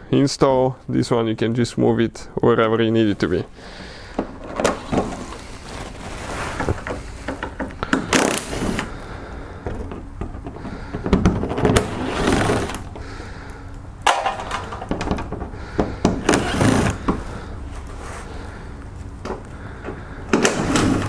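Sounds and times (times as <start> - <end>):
cordless drill spinning bolts: 16.2 - 17.0.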